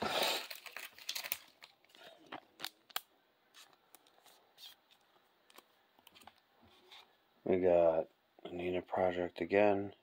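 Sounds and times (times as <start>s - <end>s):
cards and plastic sleeve rustling: 0.0s - 7.2s.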